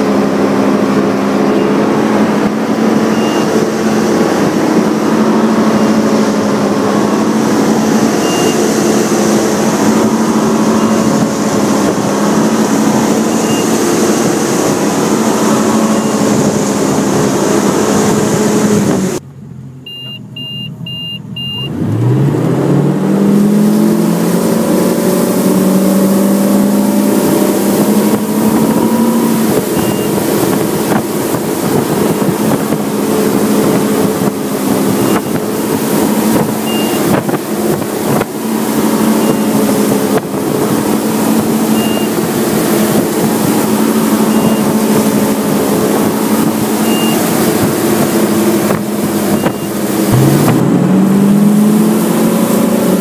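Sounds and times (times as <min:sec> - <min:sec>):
rushing wake and spray: 0:00.0 - 0:19.2, 0:21.7 - 0:53.0
boat engine running: 0:00.0 - 0:53.0
quick electronic beeps: 0:03.1 - 0:03.6, 0:08.0 - 0:09.0, 0:13.3 - 0:13.8, 0:15.9 - 0:16.3, 0:19.9 - 0:21.7, 0:29.7 - 0:30.2, 0:36.6 - 0:37.0, 0:39.2 - 0:39.6, 0:41.7 - 0:42.2, 0:44.3 - 0:44.8, 0:46.8 - 0:47.2, 0:49.3 - 0:50.5.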